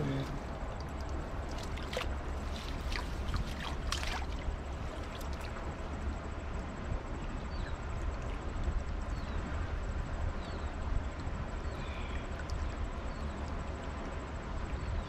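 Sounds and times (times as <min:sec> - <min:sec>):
river water splashing: 0:00.0 - 0:09.0
steady low rumble: 0:00.0 - 0:15.0.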